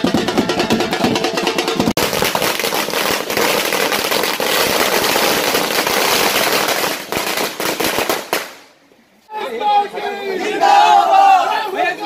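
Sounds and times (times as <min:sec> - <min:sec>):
firecrackers bursting: 0:00.0 - 0:08.8.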